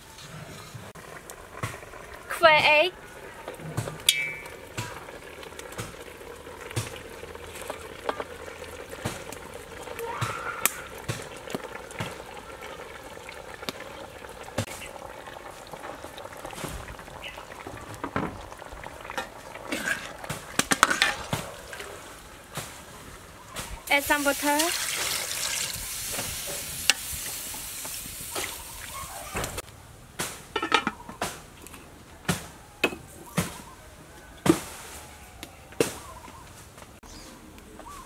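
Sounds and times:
sauce simmering in a pot: 0.9s - 29.0s
metal ladle clicking and knocking: 30.6s - 31.0s.

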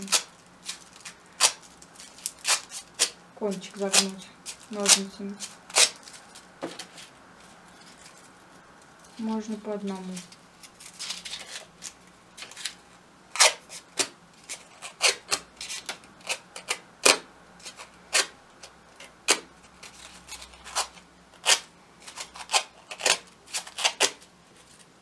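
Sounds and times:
paper scraping over scissor blade: 19.0s - 24.9s.

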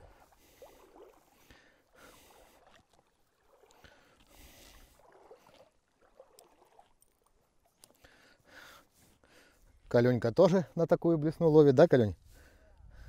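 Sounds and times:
water sloshing around waders: 0.0s - 9.9s.

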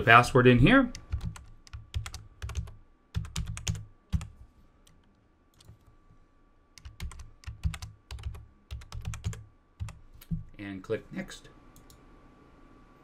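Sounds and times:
typing on a keyboard: 0.9s - 4.4s, 6.8s - 10.0s.

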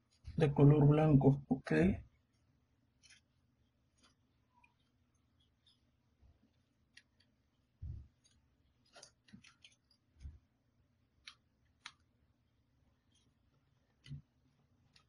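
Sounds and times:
paper clicks and rustles: 3.0s - 5.0s, 6.5s - 10.4s.

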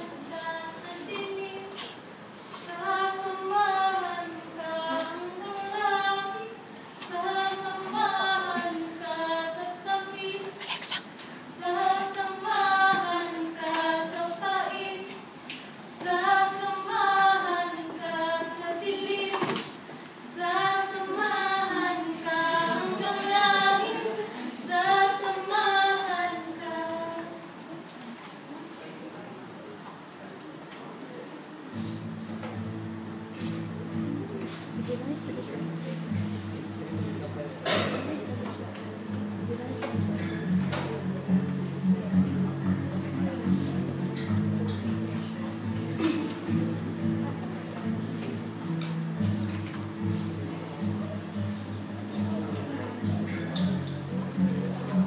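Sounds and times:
women singing unaccompanied: 0.0s - 10.7s, 11.4s - 27.6s.

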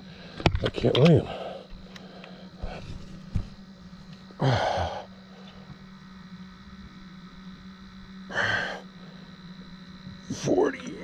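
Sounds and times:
steady low hum: 0.0s - 11.0s
man breathing out hard: 4.4s - 5.1s, 8.3s - 9.1s.

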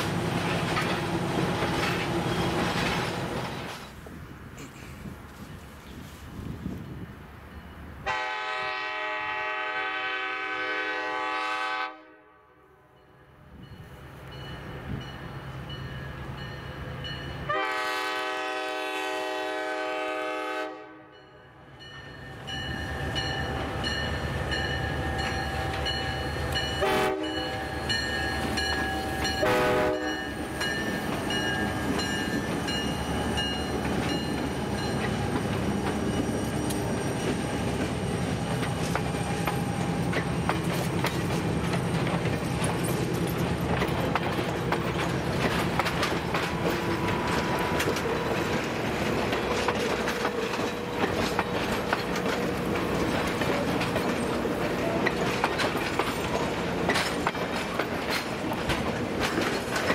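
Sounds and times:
train cars rolling on rails: 0.0s - 11.5s, 21.6s - 59.9s
locomotive air horn blasts: 8.0s - 12.8s, 17.5s - 21.2s, 26.8s - 27.7s, 29.3s - 30.4s.

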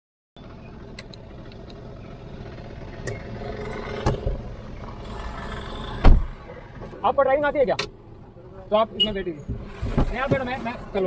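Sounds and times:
car rolling noise: 0.4s - 11.0s
loud thump: 6.0s - 6.4s.

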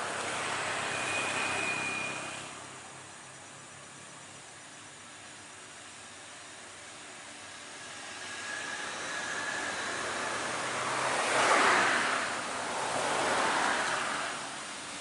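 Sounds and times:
passing vehicles rushing: 0.0s - 2.8s, 7.8s - 15.0s.

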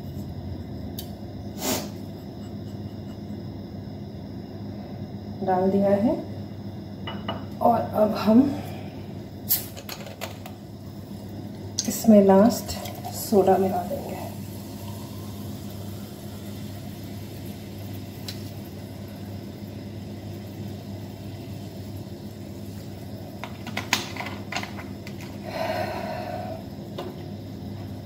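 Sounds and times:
soda water pouring and fizzing: 11.8s - 25.6s.

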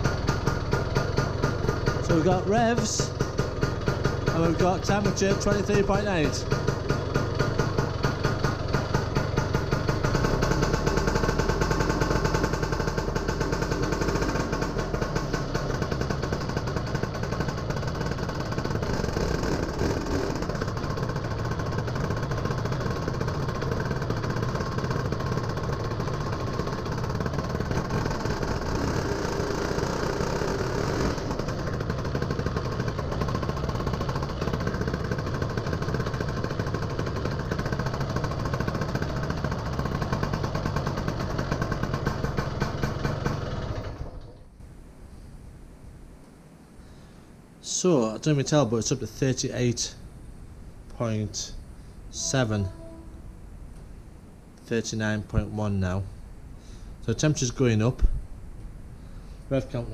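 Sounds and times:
two-stroke scooter engine idling: 0.0s - 44.6s, 52.1s - 53.5s.

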